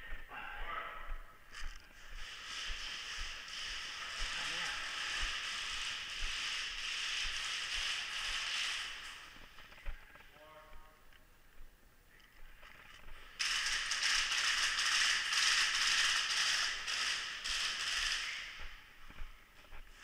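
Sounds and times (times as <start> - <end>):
airsoft gun full-auto burst: 2.3 - 9.4, 13.4 - 18.8.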